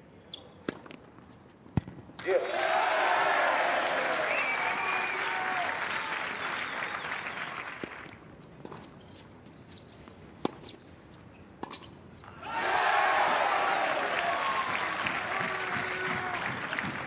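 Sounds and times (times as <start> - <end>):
tennis ball hitting racket and court: 0.6 - 2.2, 8.6 - 12.5
crowd applause: 2.3 - 8.1, 12.5 - 17.0.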